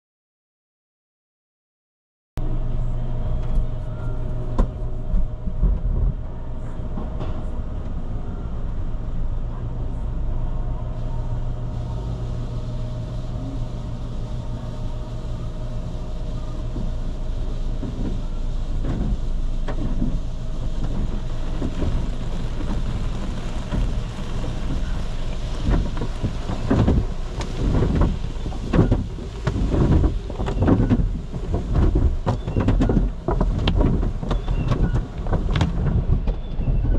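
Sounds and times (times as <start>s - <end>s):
car wash mechanical hum: 2.4s - 36.9s
thumps and swishes on car body: 16.6s - 36.9s.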